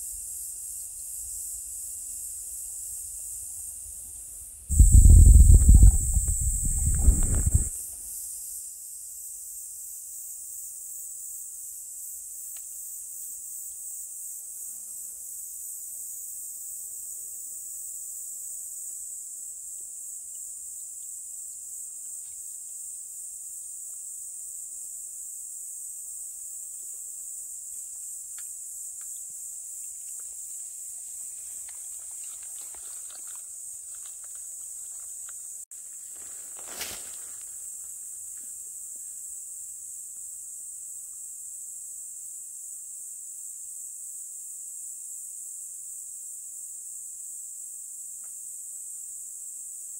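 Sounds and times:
high-pitched insect chorus: 0.0s - 49.9s
faint ticks and rustles: 18.7s - 24.3s, 25.9s - 41.3s.

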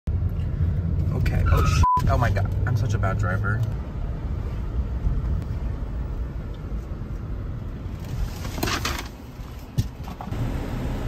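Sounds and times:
car cabin road rumble: 0.1s - 11.0s.

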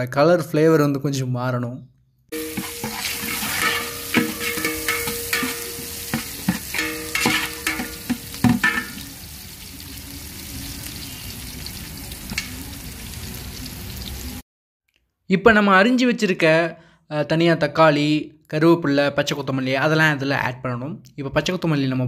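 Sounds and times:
onions sizzling in oil: 2.3s - 14.4s
metal ladle scraping a pot: 2.4s - 9.1s.

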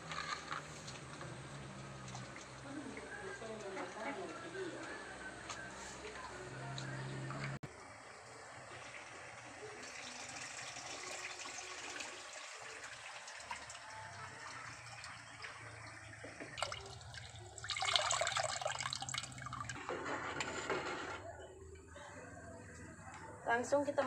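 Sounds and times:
liquid trickling and splashing into pot: 8.8s - 19.8s.

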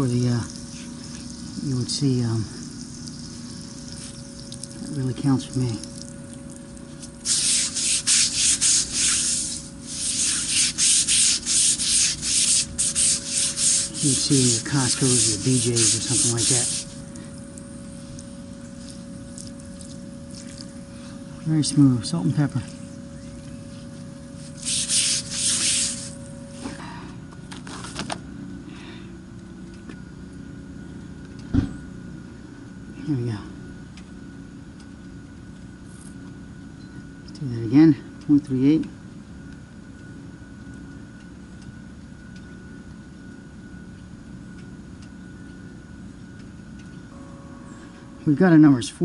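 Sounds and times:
water spraying hiss: 0.0s - 6.1s, 6.9s - 17.3s, 24.4s - 26.3s
high steady tone: 0.0s - 27.3s, 43.5s - 49.0s
low machine hum: 0.0s - 49.0s
abrasive pad scrubbing concrete: 6.9s - 17.0s, 24.4s - 26.2s
thump: 31.5s - 31.8s.

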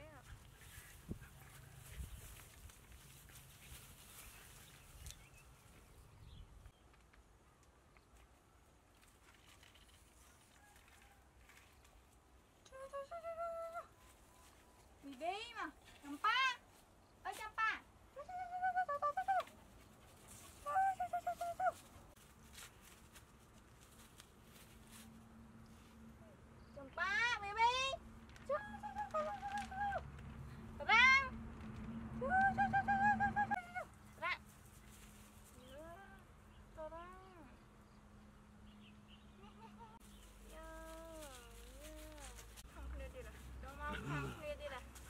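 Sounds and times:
puppies play-fighting on grass: 0.0s - 12.6s, 19.5s - 26.6s, 33.8s - 36.7s, 37.7s - 45.0s.

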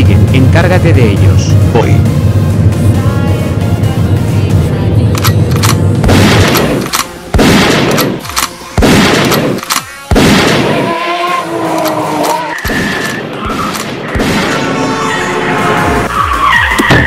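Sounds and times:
car engine hum: 0.0s - 7.3s, 10.7s - 16.7s
gunshots with echoing tail: 5.2s - 11.2s, 12.6s - 14.8s.

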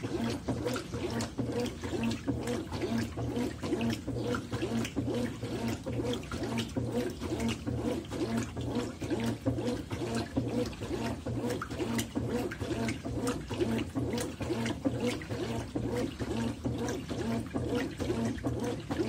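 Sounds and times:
washing machine motor humming: 0.0s - 19.0s
water sloshing: 0.0s - 19.0s.

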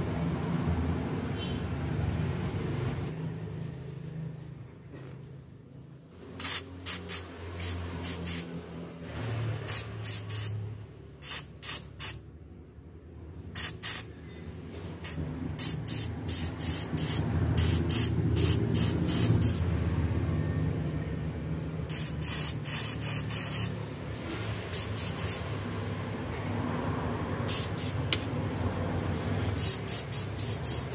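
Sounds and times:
aerosol spray hissing: 6.4s - 8.5s, 9.7s - 10.6s, 11.2s - 12.2s, 13.6s - 14.1s, 15.0s - 19.6s, 21.9s - 23.8s, 24.7s - 25.4s, 27.4s - 28.1s, 29.5s - 30.9s.

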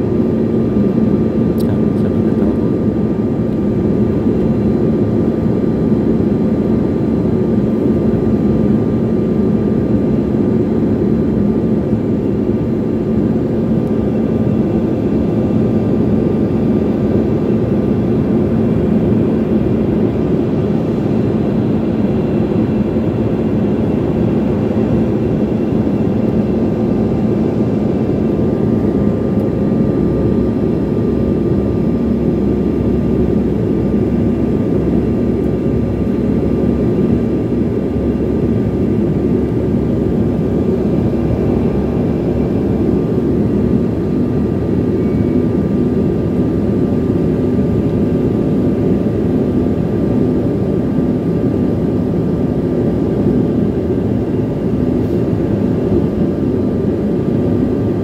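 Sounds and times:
constant low hum: 0.0s - 58.0s
plane engines droning: 0.0s - 58.0s.

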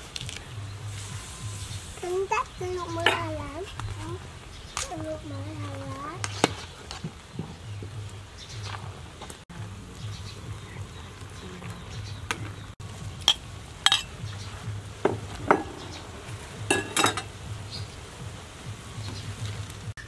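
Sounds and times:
ladle clinking against pot: 13.3s - 14.1s, 16.7s - 17.3s.

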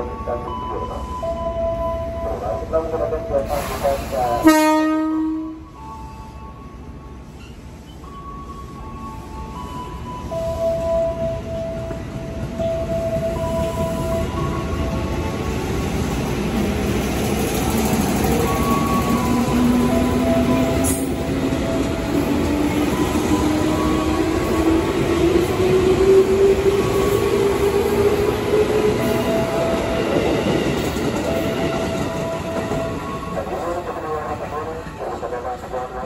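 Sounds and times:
electric train accelerating: 5.6s - 36.0s
wheels rumbling on rails: 7.4s - 36.0s.

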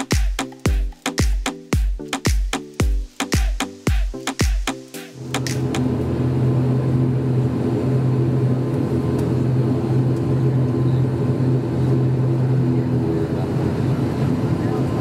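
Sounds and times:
propeller engine drone in cabin: 5.2s - 15.0s.

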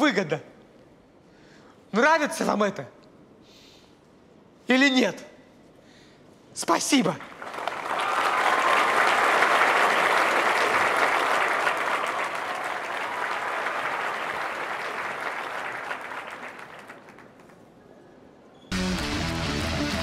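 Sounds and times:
audience applauding: 7.2s - 17.7s.

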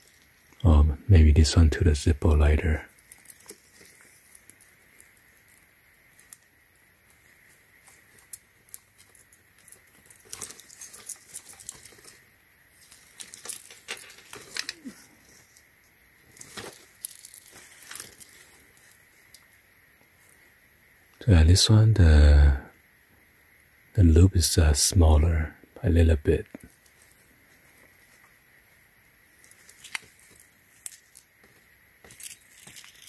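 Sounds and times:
metal chain links jingling: 9.1s - 15.2s, 16.4s - 18.8s, 30.2s - 33.0s.

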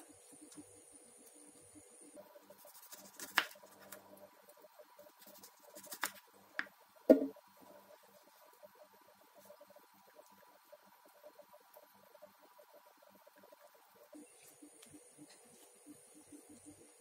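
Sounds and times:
knife knocking on wooden board: 7.1s - 7.3s.

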